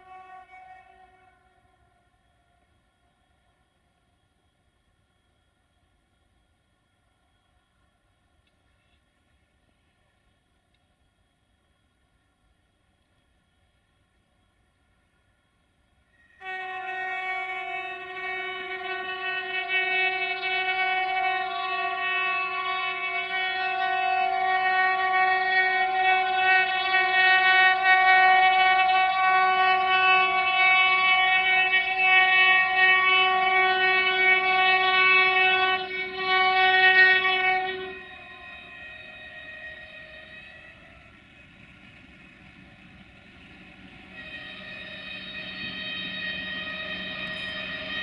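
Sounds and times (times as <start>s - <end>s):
locomotive horn blast: 0.0s - 2.8s, 16.1s - 48.0s
approaching train: 0.0s - 48.0s.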